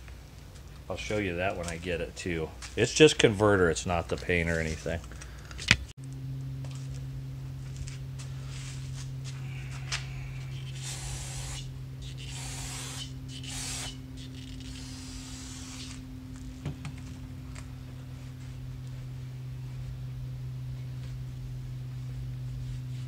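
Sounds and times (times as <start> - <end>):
low hum: 0.0 - 23.0
aerosol spray hissing: 10.6 - 14.0.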